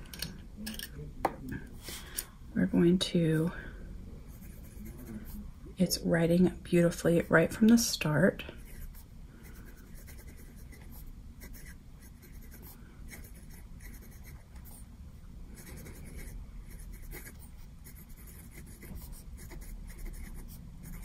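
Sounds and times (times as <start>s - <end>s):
pen nib scratching on paper: 4.3s - 5.4s, 8.6s - 14.8s, 15.5s - 21.0s.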